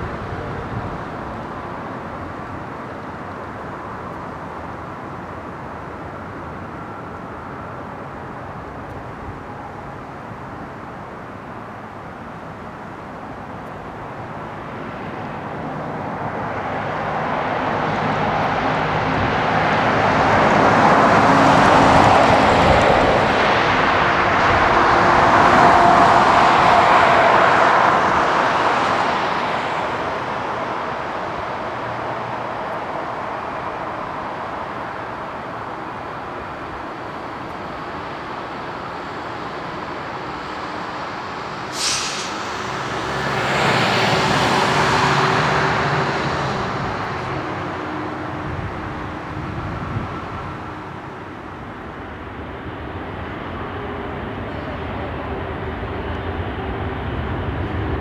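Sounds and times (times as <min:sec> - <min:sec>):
jet engine roar: 0:13.3 - 0:58.0
brief sharp click: 0:41.8 - 0:42.4.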